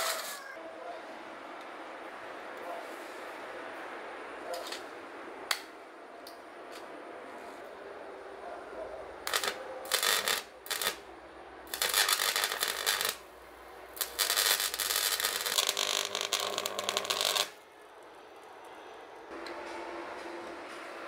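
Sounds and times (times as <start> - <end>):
electric arc crackling and buzzing: 9.2 - 11.0, 11.7 - 13.3, 14.0 - 17.6.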